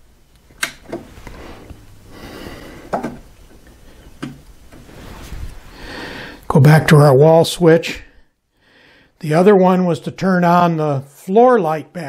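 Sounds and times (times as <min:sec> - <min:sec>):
sharp clicks and knocks: 0:00.3 - 0:01.1.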